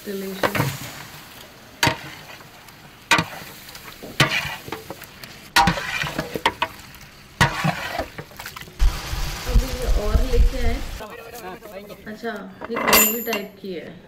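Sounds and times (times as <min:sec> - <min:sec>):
sauce sizzling in a pan: 0:00.0 - 0:11.0
ladle scraping and knocking a pan: 0:01.8 - 0:02.5, 0:03.1 - 0:05.0, 0:05.6 - 0:06.8, 0:07.4 - 0:08.4.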